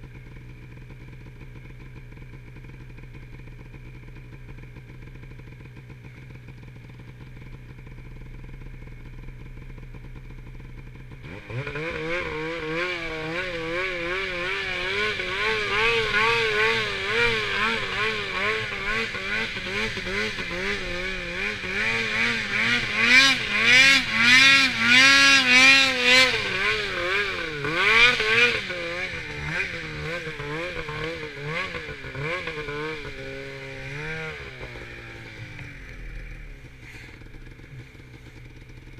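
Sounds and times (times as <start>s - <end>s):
snowmobile engine revving: 11.1s - 38.9s.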